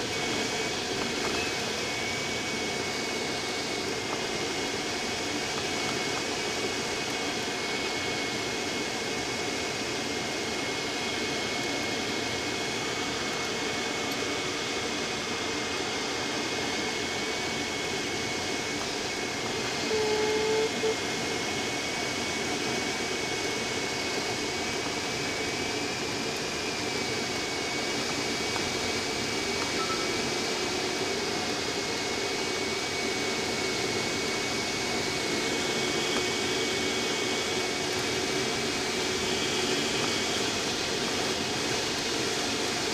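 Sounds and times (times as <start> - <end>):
brief beep: 29.7 - 30.2
thin steady high tone: 29.7 - 30.4.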